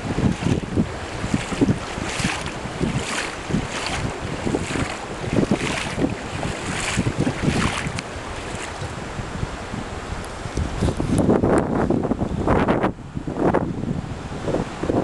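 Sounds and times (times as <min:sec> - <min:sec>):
river hissing: 0:00.0 - 0:10.1
wind buffeting microphone: 0:00.0 - 0:15.0.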